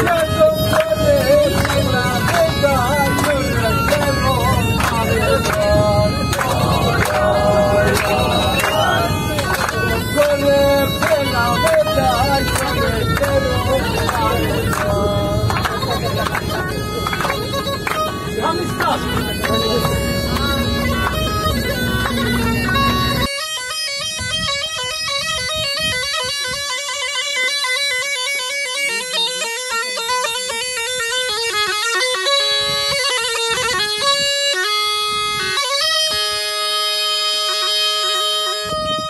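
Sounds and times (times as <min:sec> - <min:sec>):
bus rumble: 0:00.0 - 0:23.3
crowd noise: 0:00.0 - 0:23.3
bagpipe playing fast melody: 0:00.0 - 0:39.0.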